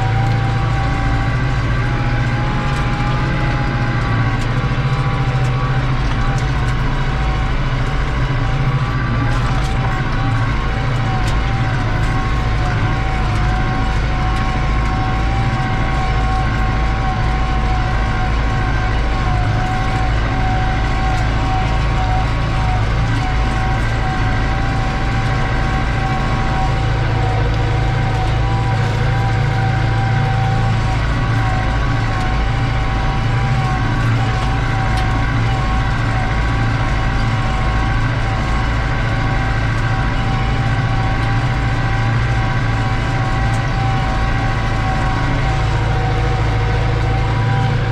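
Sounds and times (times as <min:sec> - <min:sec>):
tractor diesel engine running: 0:00.0 - 0:47.9.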